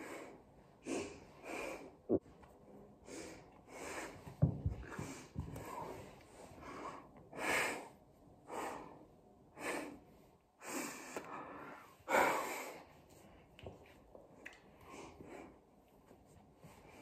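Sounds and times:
woman breathing: 0:00.0 - 0:02.2, 0:02.8 - 0:13.5.

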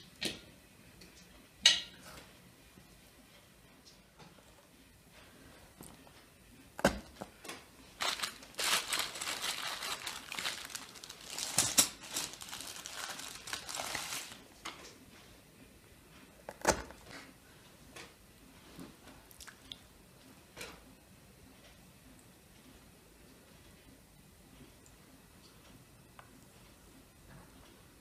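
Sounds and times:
plastic packaging crinkling: 0:07.9 - 0:14.4.

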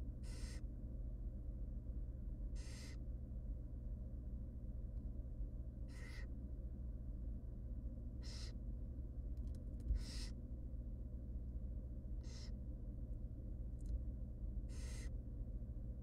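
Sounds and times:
steady low hum: 0:00.0 - 0:16.0
owl chicks begging hisses: 0:00.2 - 0:00.6, 0:02.6 - 0:03.0, 0:05.9 - 0:06.3, 0:08.2 - 0:08.6, 0:10.0 - 0:10.4, 0:12.2 - 0:12.6, 0:14.7 - 0:15.2.

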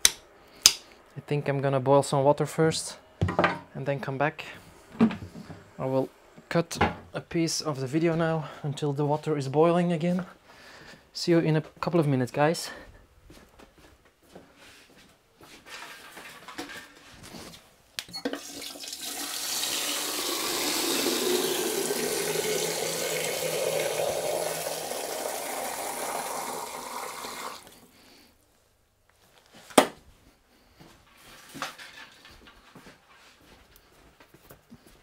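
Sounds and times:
tap water filling a vessel: 0:18.2 - 0:27.8.

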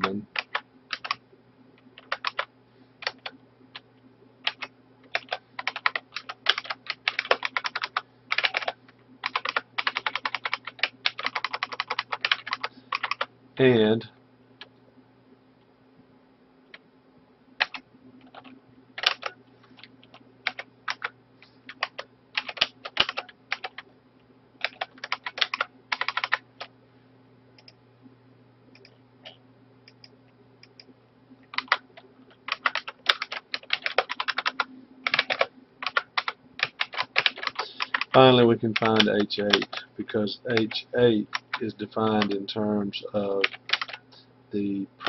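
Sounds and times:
typing on computer keyboard: 0:00.0 - 0:01.2, 0:02.0 - 0:03.4, 0:04.4 - 0:13.3, 0:17.6 - 0:21.1, 0:21.7 - 0:23.8, 0:24.6 - 0:26.7, 0:31.5 - 0:39.9, 0:40.5 - 0:42.4, 0:43.4 - 0:44.0.

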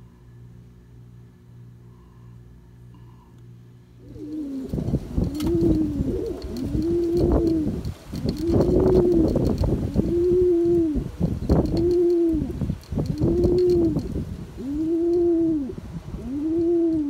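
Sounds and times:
faint low hum: 0:00.0 - 0:17.0
pigeons cooing: 0:04.0 - 0:17.0.

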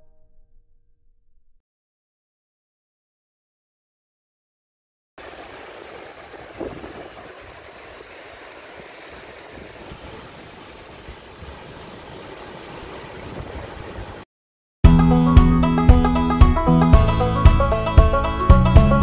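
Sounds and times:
waves washing on shore: 0:05.2 - 0:14.2
music with steady beat: 0:14.9 - 0:19.0.

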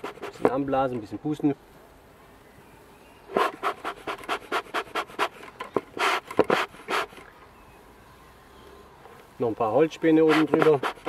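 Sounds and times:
bellows puffing air: 0:03.3 - 0:07.2, 0:10.2 - 0:11.0.

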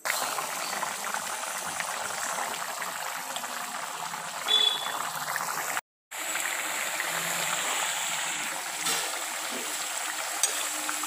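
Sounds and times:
gravy bubbling and popping: 0:00.0 - 0:07.6.

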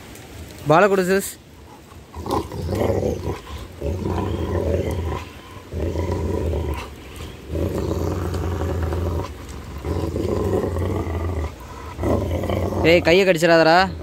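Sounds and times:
dog growling: 0:01.7 - 0:13.3.

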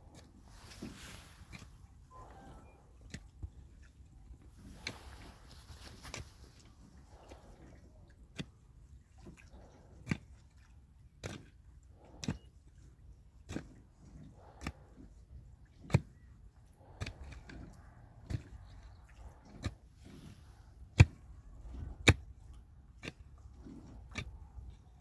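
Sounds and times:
loose earth scraping: 0:00.0 - 0:08.5, 0:16.7 - 0:25.0.

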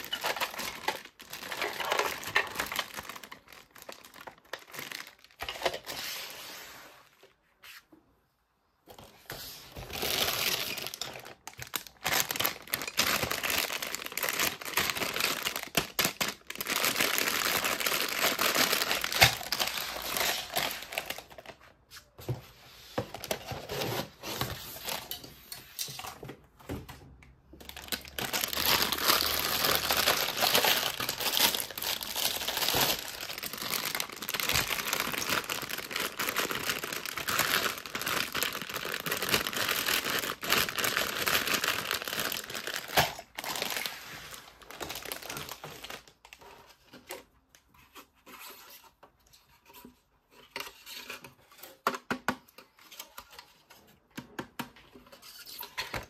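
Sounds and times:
toy packaging crinkling: 0:00.0 - 0:06.0, 0:09.8 - 0:21.6, 0:27.6 - 0:46.5.

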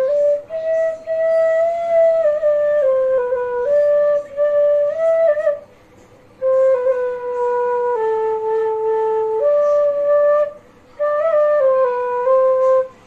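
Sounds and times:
bamboo flute melody: 0:00.0 - 0:13.0.

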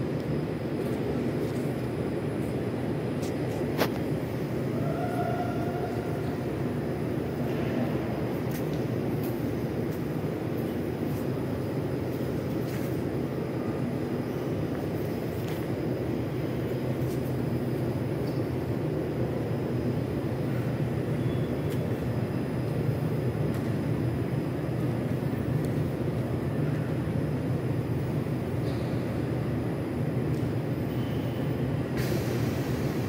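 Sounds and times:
train equipment humming: 0:00.0 - 0:33.0.

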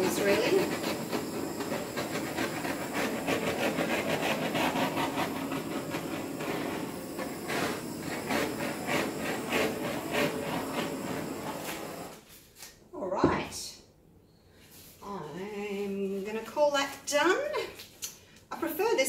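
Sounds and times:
gas torch flame hissing: 0:00.0 - 0:12.2.

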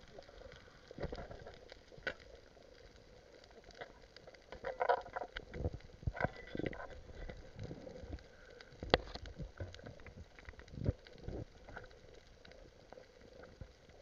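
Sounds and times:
faint steady crackle: 0:00.0 - 0:14.0
underwater clicks and knocks: 0:03.7 - 0:08.2, 0:08.8 - 0:11.9.

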